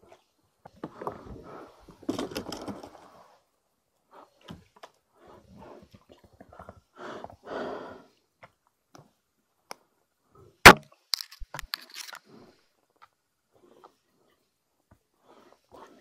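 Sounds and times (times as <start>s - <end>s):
fishing gear rustling: 11.1s - 12.3s.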